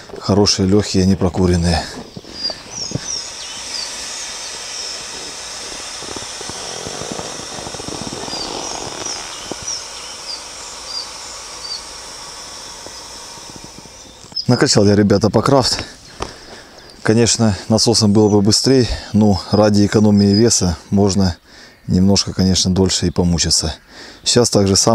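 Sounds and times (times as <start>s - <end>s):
birds chirping: 0.0s - 24.9s
person blowing air into valve: 1.6s - 17.7s.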